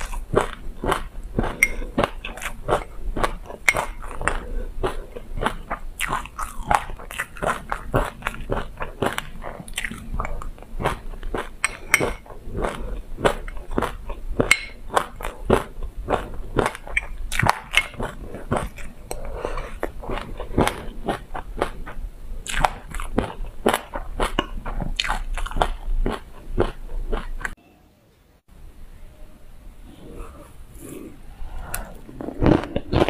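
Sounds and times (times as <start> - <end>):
crunching and chewing seeds: 0.0 - 27.6, 31.0 - 33.0.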